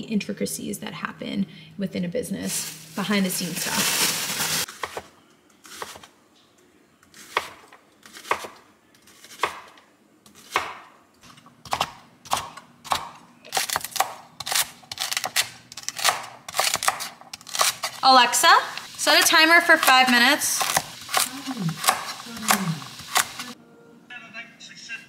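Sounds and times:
knife chopping on wooden board: 7.3s - 8.6s, 9.2s - 9.7s, 10.3s - 10.9s, 11.7s - 17.8s, 20.6s - 23.4s.

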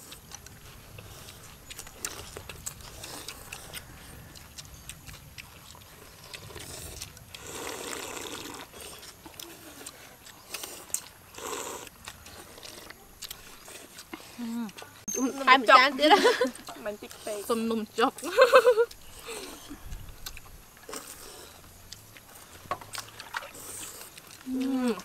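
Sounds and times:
slurping noodles: 5.6s - 14.6s, 22.3s - 25.0s.

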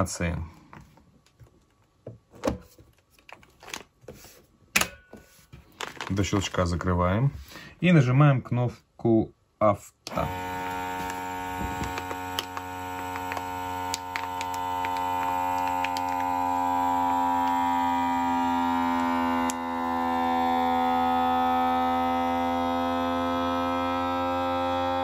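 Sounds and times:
plastic bag crinkling: 3.0s - 4.0s, 5.6s - 6.9s, 10.4s - 17.6s
vacuum sealer pump running: 10.1s - 25.0s.

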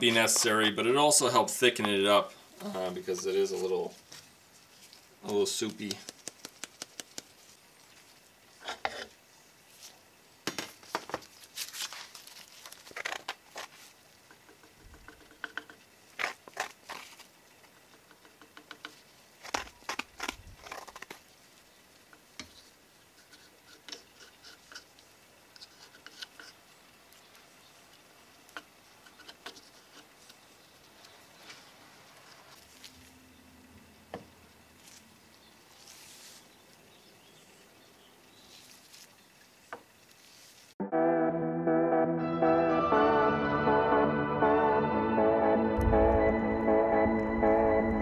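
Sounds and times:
wooden stick scraping and tapping: 5.3s - 7.4s, 14.3s - 15.8s, 22.4s - 26.6s, 28.5s - 30.4s.

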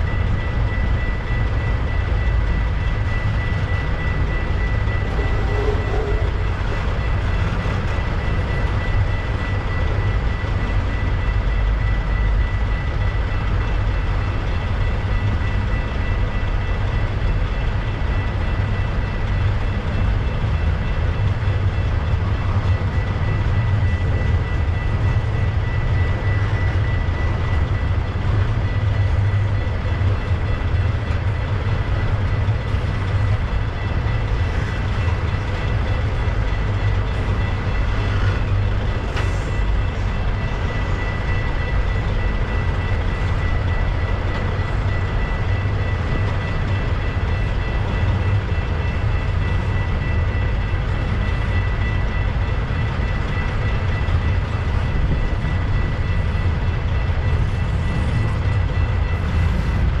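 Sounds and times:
train wheels rumbling: 0.0s - 60.0s
thin high tone: 2.0s - 9.0s.

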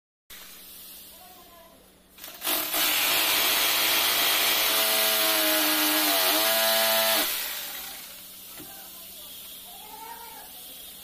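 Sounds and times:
electric drill boring into wall: 2.2s - 8.2s.

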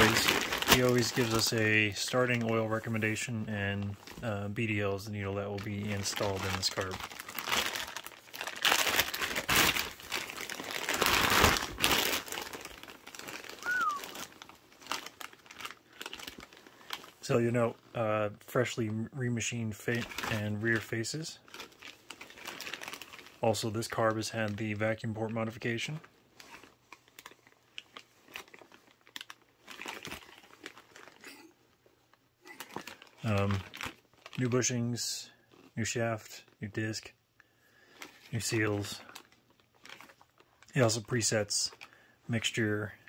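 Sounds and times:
plastic bag crinkling: 0.0s - 17.8s, 19.5s - 31.8s, 32.4s - 34.6s, 37.8s - 42.0s
short falling chirp: 13.6s - 14.1s.

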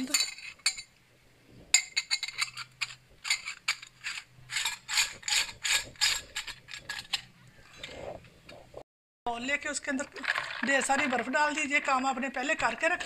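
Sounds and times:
metal threads scraping: 1.7s - 8.6s.

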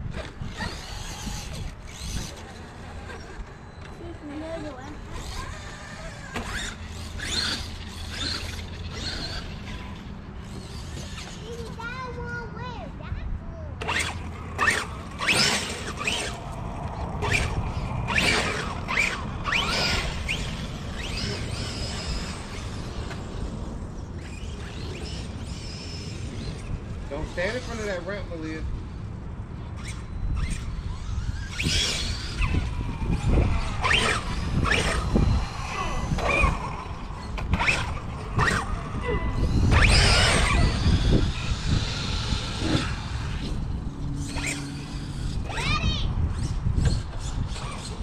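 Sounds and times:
electric motor whining: 0.0s - 11.7s, 13.8s - 28.6s, 29.6s - 48.0s.

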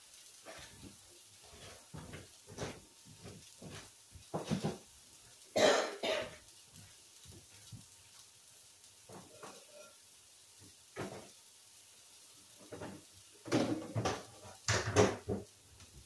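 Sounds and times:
woman clearing her throat: 5.6s - 6.4s
woman coughing: 5.6s - 6.4s.

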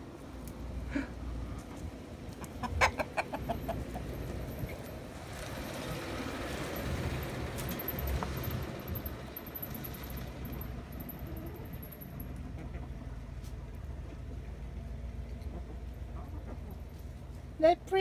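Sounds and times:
hens clucking: 1.7s - 4.8s, 11.3s - 13.6s, 15.3s - 17.2s.

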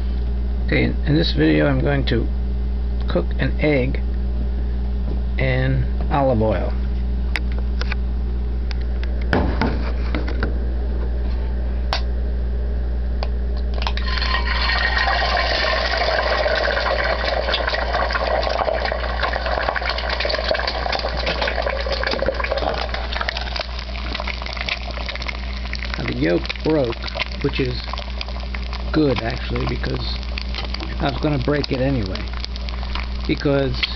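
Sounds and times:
steady low hum: 0.0s - 33.9s
egg sizzling in hot oil: 13.9s - 33.9s.

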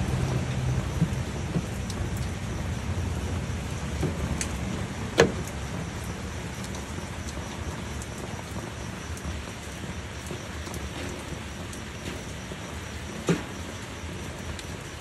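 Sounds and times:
steady rushing noise: 0.0s - 5.0s.

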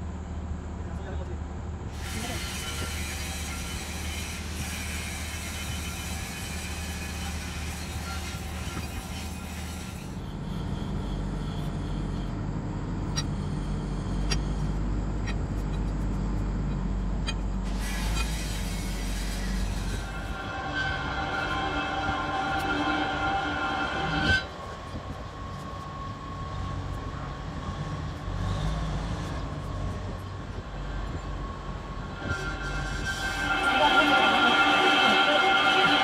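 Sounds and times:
machinery rumble: 0.0s - 36.0s
hiss: 1.9s - 11.0s, 17.7s - 23.4s.

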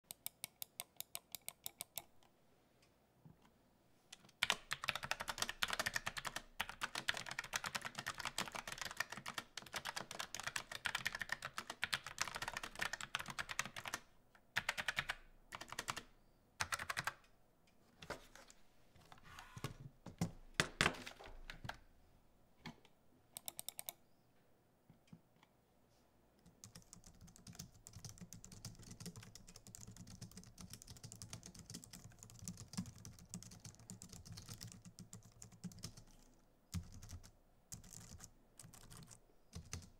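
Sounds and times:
soft muffled keyboard typing: 0.0s - 2.3s, 4.1s - 21.9s, 22.6s - 24.0s, 26.4s - 39.9s
clacky mechanical keyboard typing: 4.4s - 14.0s, 14.6s - 17.2s, 26.6s - 39.9s.

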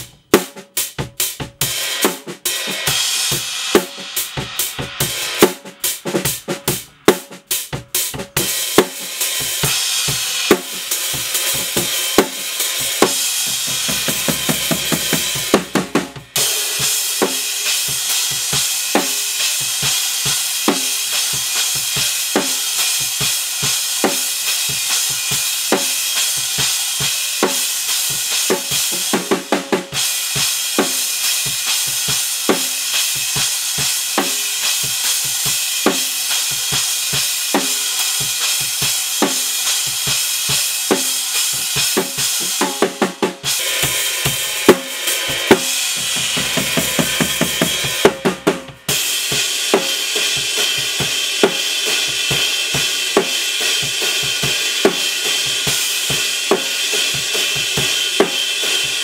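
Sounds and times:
drum fills: 0.0s - 59.0s
ride and crash cymbals: 0.8s - 59.0s
snare drum hits: 11.6s - 16.5s, 42.4s - 49.0s
kick drum: 46.0s - 48.8s.

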